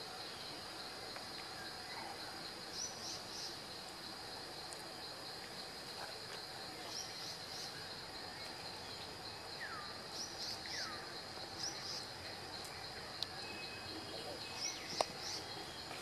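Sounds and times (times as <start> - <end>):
insect drone: 0.0 - 16.0
bird chirps: 6.8 - 16.0.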